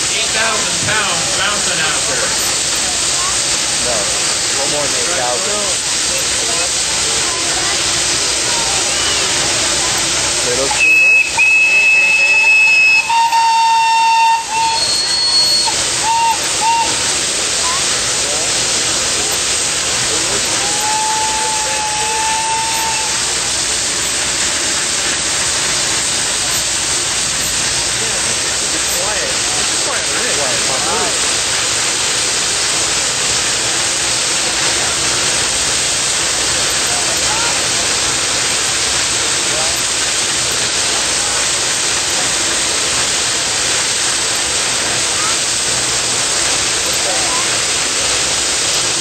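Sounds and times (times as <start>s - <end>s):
steam and water hissing: 0.0s - 49.0s
thin whistle-like tone: 10.7s - 17.0s.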